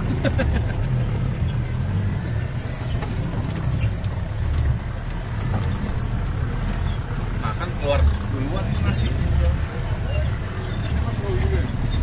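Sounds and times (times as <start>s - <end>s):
jeep engine at low revs: 0.0s - 12.0s
knocks and rattles: 0.8s - 9.7s.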